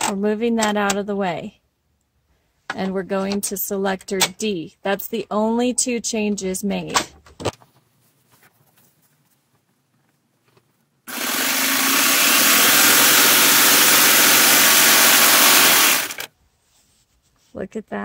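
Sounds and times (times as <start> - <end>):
serger machine running: 11.1 - 16.3.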